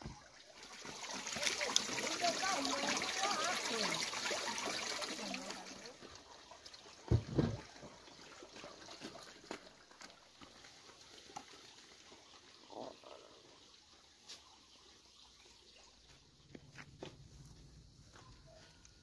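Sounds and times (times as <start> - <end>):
footsteps on dirt path: 16.0 - 19.0.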